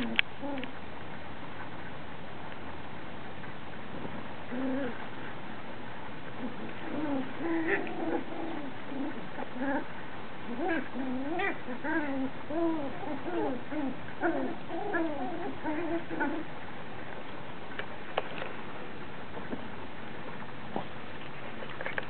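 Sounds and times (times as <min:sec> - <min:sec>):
puppies whining and yelping: 0:06.4 - 0:09.9, 0:10.5 - 0:16.5.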